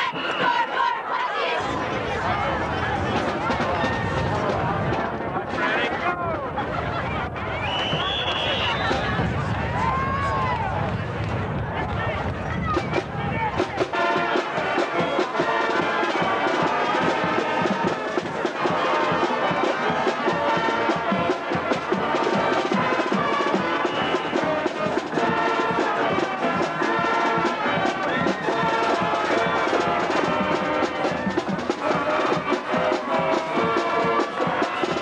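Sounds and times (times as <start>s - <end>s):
brass band music with percussion: 0.0s - 1.0s, 12.6s - 35.0s.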